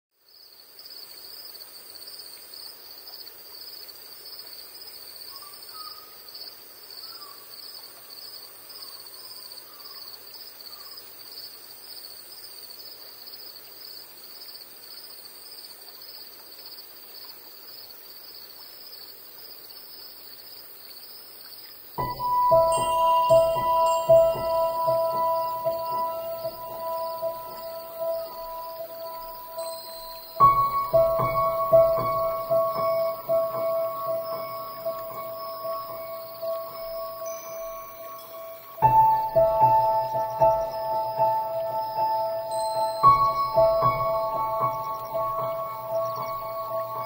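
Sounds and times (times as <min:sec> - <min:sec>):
cicadas droning: 0:00.2 - 0:47.0
faint bird chirps: 0:04.9 - 0:11.0, 0:19.6 - 0:47.0
music with chiming tones: 0:22.0 - 0:47.0.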